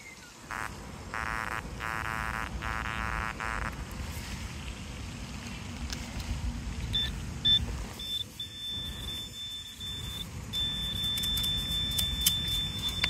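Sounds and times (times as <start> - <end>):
metal detector steady high tone: 0.5 - 3.7, 7.0 - 13.0
metal detector short beeps: 7.0 - 13.0.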